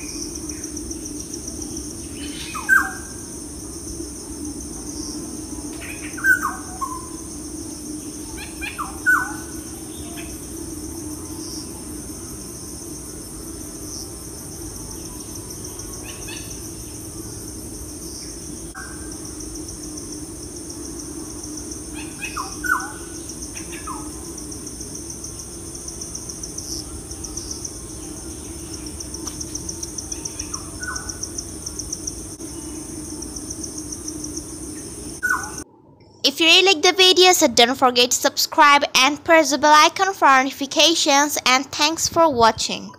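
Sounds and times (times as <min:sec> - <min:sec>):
low hum: 0:00.0 - 0:36.3
steady high hiss: 0:00.0 - 0:42.3
birds chirping: 0:20.8 - 0:35.6.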